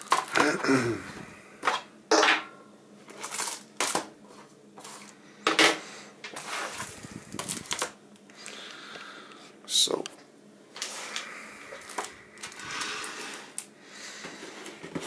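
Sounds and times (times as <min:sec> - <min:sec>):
rustling and sliding: 0:06.3 - 0:07.9.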